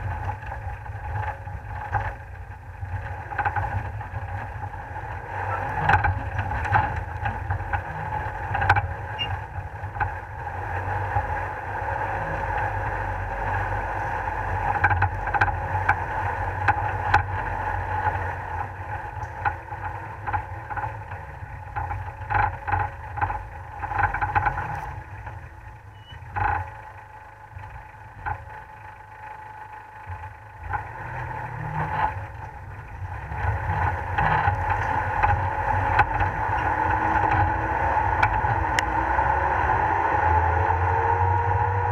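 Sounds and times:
off-road vehicle engine running: 0:00.0 - 0:41.9
sharp knocks from rough ground: 0:21.7 - 0:25.4.

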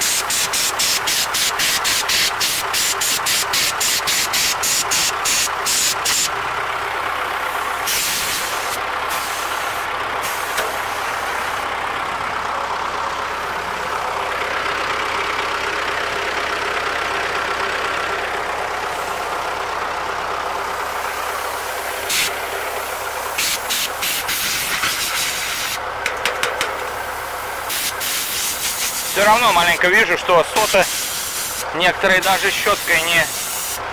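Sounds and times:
compressed air hissing: 0:00.0 - 0:06.3, 0:07.8 - 0:11.6, 0:21.0 - 0:25.8, 0:27.0 - 0:29.2, 0:30.6 - 0:33.8
sharp air blasts: 0:00.0 - 0:06.3, 0:07.9 - 0:09.5, 0:22.1 - 0:22.4, 0:23.3 - 0:25.8, 0:27.2 - 0:29.2, 0:30.6 - 0:31.7, 0:32.3 - 0:33.8
diesel truck engine idling: 0:00.0 - 0:33.9.

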